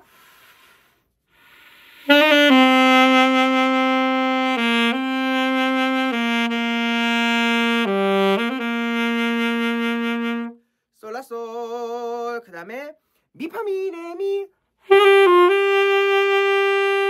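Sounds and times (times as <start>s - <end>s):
faint breath: 0.0s - 2.1s
alto saxophone playing slow phrase: 2.0s - 10.6s, 14.9s - 17.0s.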